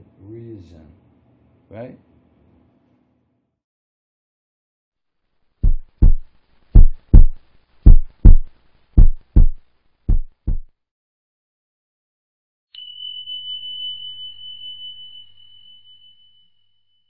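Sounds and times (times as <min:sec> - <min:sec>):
heartbeat thumps: 0:05.6 - 0:10.7.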